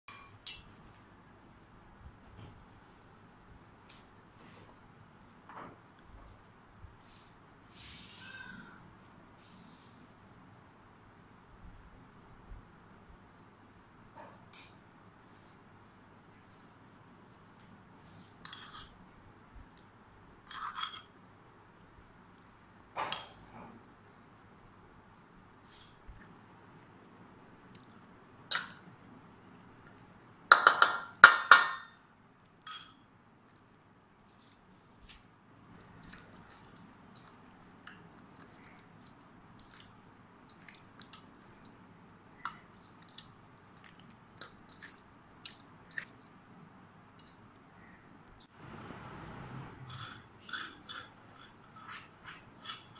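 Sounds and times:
metal spoon clinking bowl: 0:00.1 - 0:00.7, 0:32.6 - 0:33.1
wet squelching of kneaded meat: 0:33.4 - 0:47.7.

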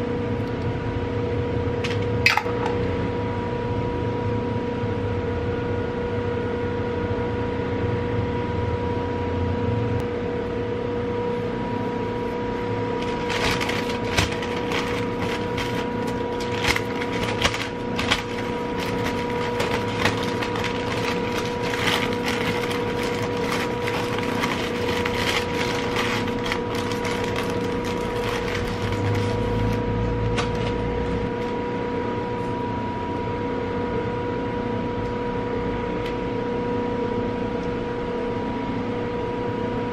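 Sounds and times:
steady hum with high whine: 0:00.0 - 0:39.9
paper crinkling: 0:13.0 - 0:31.5.

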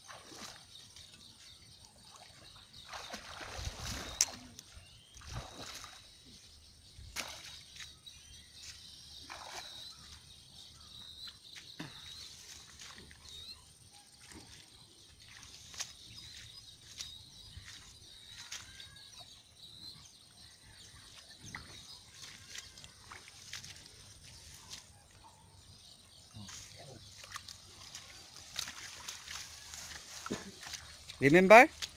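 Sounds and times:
water sloshing and splashing: 0:00.0 - 0:10.3, 0:14.1 - 0:18.8, 0:21.3 - 0:25.2, 0:26.5 - 0:31.9.

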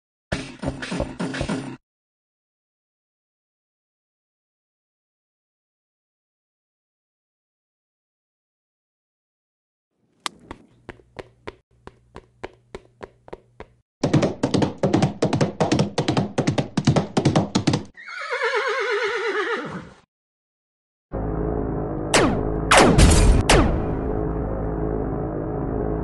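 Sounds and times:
horse hooves clip-clopping: 0:10.1 - 0:17.9
horse whinnying: 0:18.0 - 0:20.0.

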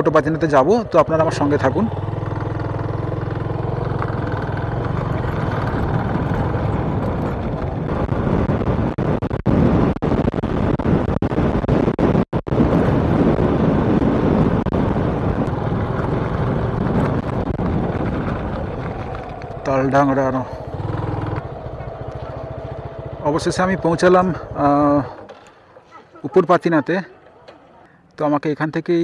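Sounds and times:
motorcycle engine running: 0:00.0 - 0:11.9, 0:12.5 - 0:28.0
wind rushing: 0:06.9 - 0:25.3.

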